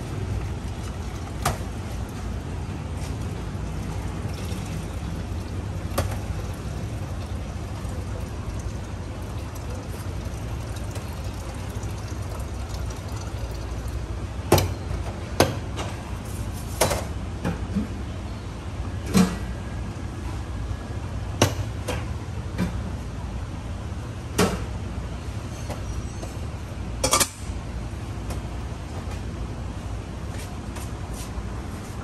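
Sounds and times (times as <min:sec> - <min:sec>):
low background hum: 0:00.0 - 0:32.0
coffee pouring into mugs: 0:00.2 - 0:14.1.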